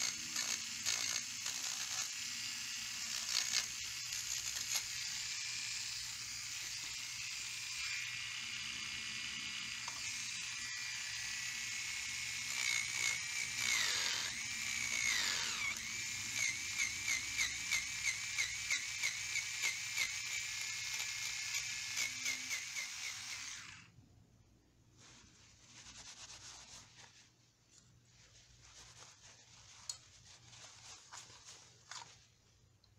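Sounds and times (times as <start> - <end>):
electric nail file whining: 0.0 - 23.9.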